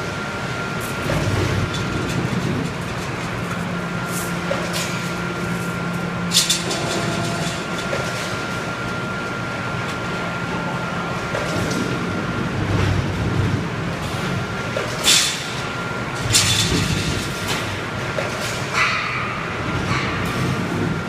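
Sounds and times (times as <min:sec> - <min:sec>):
machine humming with high tone: 0:00.0 - 0:21.0.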